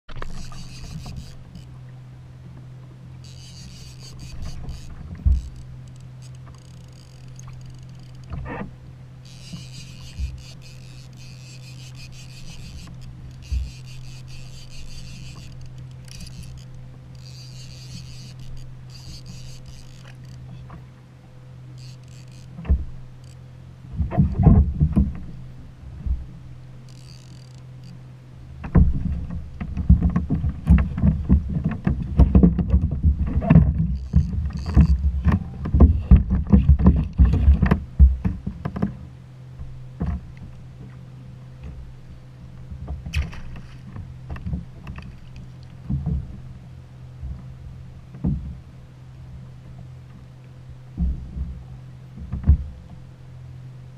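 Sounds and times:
fishing reel rattling: 0.1s - 1.8s, 3.2s - 8.3s, 9.2s - 20.5s, 21.8s - 22.6s, 23.2s - 23.4s, 26.9s - 28.0s, 34.0s - 35.0s
steady low hum: 0.1s - 53.9s
water slapping against kayak hull: 28.6s - 39.0s, 42.8s - 46.5s, 50.9s - 53.0s.

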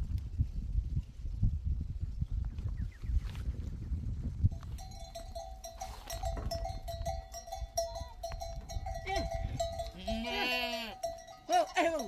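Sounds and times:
goat bells clanking: 4.5s - 12.0s
goat bleating: 9.0s - 11.1s.

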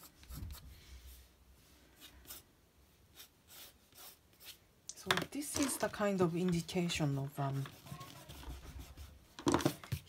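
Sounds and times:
pencil scratching on paper: 0.0s - 1.2s, 2.0s - 2.5s, 3.1s - 4.6s, 7.3s - 9.9s.

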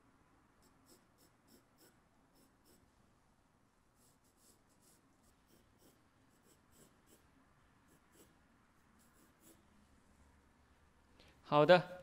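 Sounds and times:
pencil scratching on paper: 0.6s - 2.9s, 4.0s - 9.7s.

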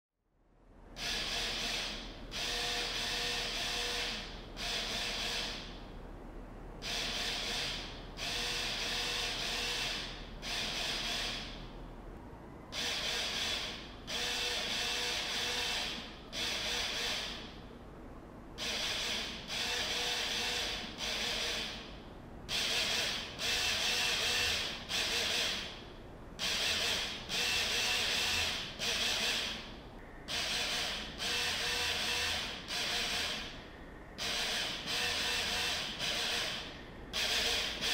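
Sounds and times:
small motors whirring: 22.6s - 25.7s, 30.3s - 33.5s, 34.2s - 37.9s.

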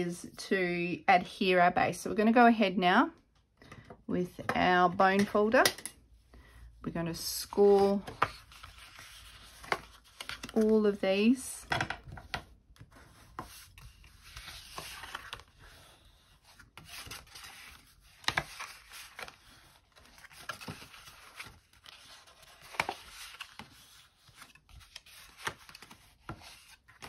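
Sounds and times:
card rustling and scraping: 7.6s - 10.9s, 12.0s - 27.0s.

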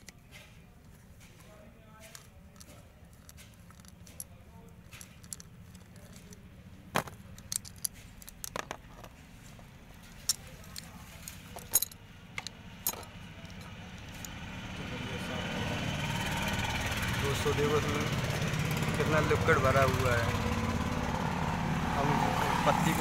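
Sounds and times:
metal bolts clinking: 2.0s - 9.2s, 10.0s - 14.4s.

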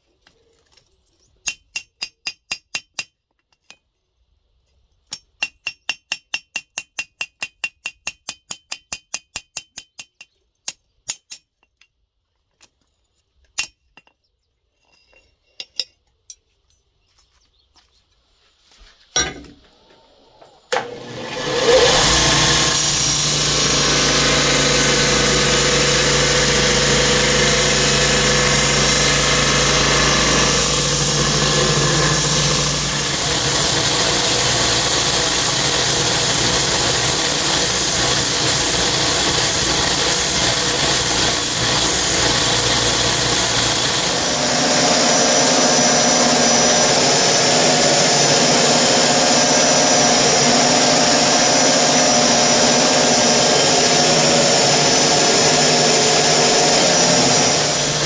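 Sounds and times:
motor hum: 19.7s - 58.0s
belt grinder grinding steel: 20.7s - 58.0s.

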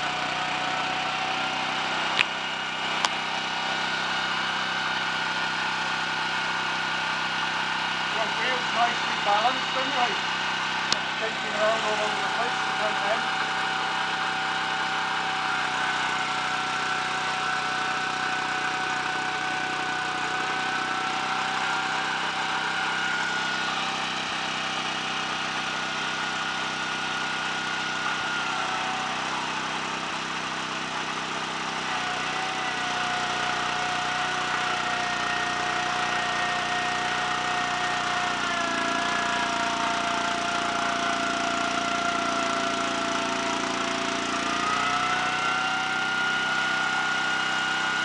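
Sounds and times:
small engine running: 0.0s - 48.0s
high whine: 8.1s - 31.5s.

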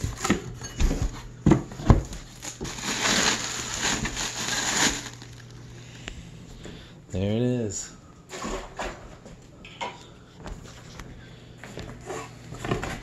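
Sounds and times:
plastic wrap rustling: 1.7s - 5.6s.

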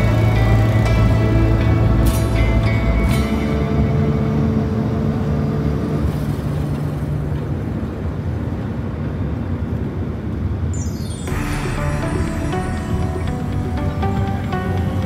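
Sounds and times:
steady low tones: 0.0s - 8.3s, 10.8s - 15.0s
car road and engine noise: 0.0s - 10.7s.

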